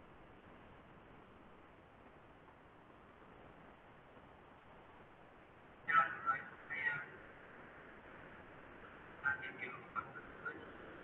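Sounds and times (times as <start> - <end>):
faint steady hiss: 0.0 - 11.0.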